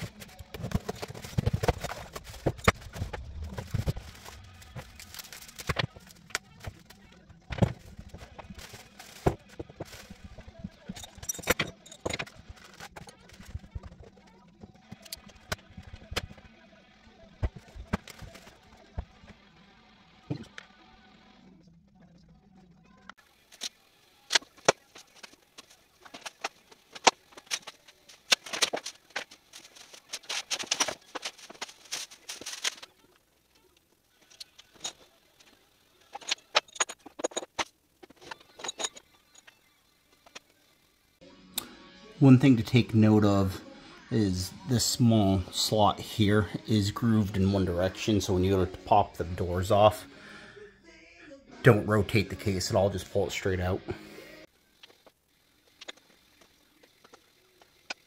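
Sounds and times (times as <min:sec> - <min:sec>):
cardboard and plastic bags rustling: 0:00.0 - 0:06.9, 0:24.8 - 0:32.9.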